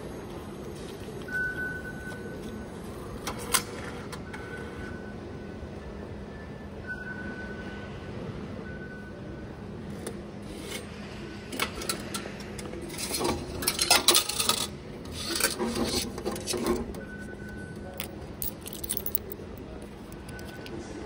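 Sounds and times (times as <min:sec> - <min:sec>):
machine dispensing ticket and coins: 0:01.2 - 0:05.0, 0:11.5 - 0:20.9.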